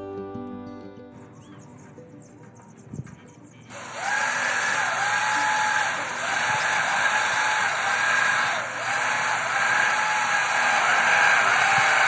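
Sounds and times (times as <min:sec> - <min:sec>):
power tool cutting steel roofing: 0:03.7 - 0:12.0.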